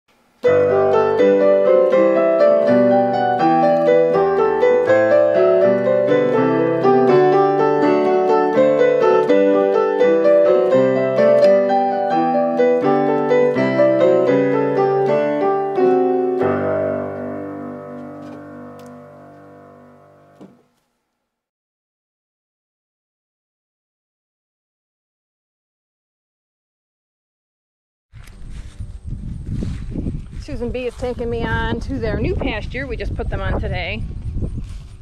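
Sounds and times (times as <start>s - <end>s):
piano music: 0.4s - 20.7s.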